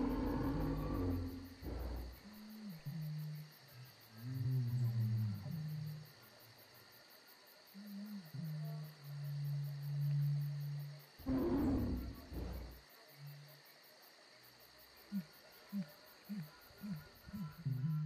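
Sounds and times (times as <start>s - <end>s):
animal roaring: 0.0s - 2.2s, 11.2s - 12.8s
animal growling: 0.0s - 3.3s, 9.5s - 12.8s
chirping insects: 0.0s - 18.0s.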